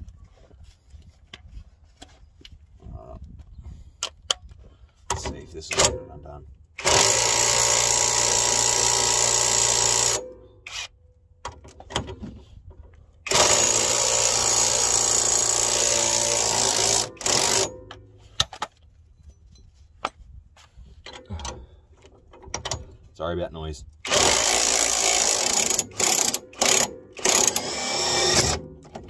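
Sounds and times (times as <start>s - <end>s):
impact wrench hammering: 13.3s - 18.0s, 24.1s - 29.0s.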